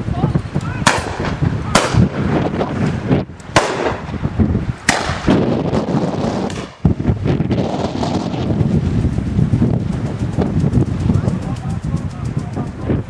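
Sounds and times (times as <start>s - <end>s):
wind buffeting microphone: 0.0s - 13.0s
shotgun shots: 0.8s - 2.3s, 3.5s - 4.1s, 4.9s - 5.4s.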